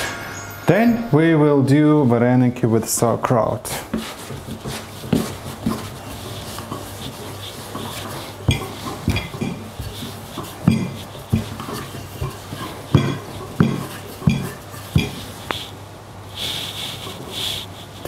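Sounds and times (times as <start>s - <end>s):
cutlery and dishes clinking: 7.7s - 15.5s.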